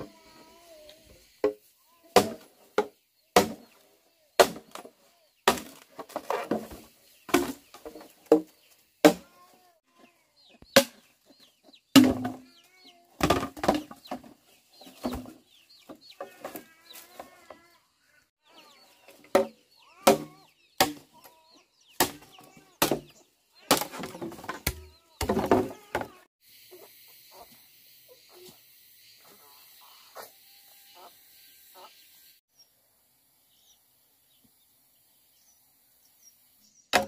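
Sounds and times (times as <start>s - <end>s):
chicks cheeping: 8.6s - 13.1s, 13.9s - 23.7s, 24.5s - 25.2s, 26.5s - 32.2s
chickens clucking: 24.1s - 28.6s, 29.2s - 30.4s.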